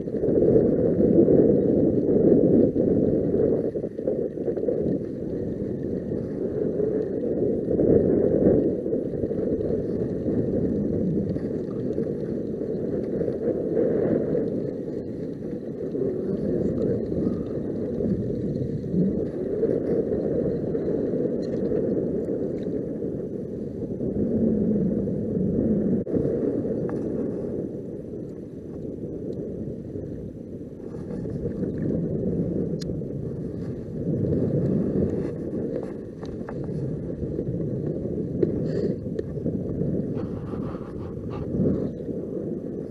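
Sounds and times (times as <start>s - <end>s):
wind rumble: 0.0s - 42.9s
water lapping around kayak: 26.1s - 42.9s.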